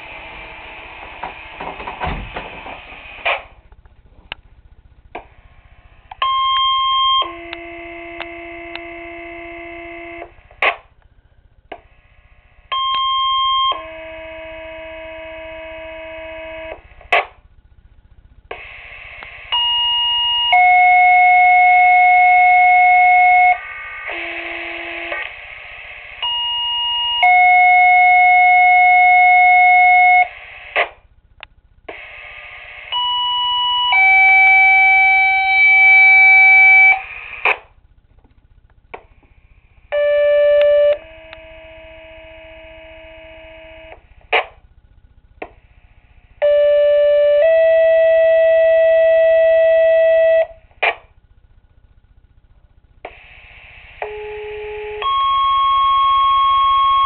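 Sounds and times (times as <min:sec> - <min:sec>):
radio clicks and hiss: 0:00.0 - 0:06.3, 0:09.6 - 0:11.1, 0:16.5 - 0:17.5, 0:18.1 - 0:19.6, 0:22.9 - 0:26.4, 0:29.3 - 0:33.0, 0:36.5 - 0:39.5, 0:40.6 - 0:44.7, 0:50.6 - 0:51.1, 0:53.0 - 0:55.1
two-tone pager tones: 0:46.4 - 0:50.5, 0:54.1 - 0:57.0.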